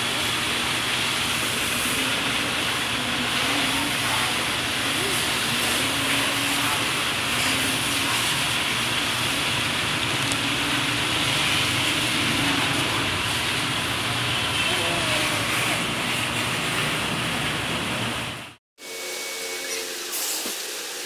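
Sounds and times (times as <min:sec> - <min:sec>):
faint voice: 0:01.8 - 0:08.2, 0:14.6 - 0:15.9.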